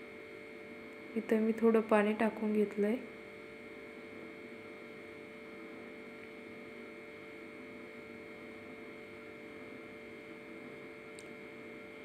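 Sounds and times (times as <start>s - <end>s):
quiet steady hum: 0.0s - 12.0s.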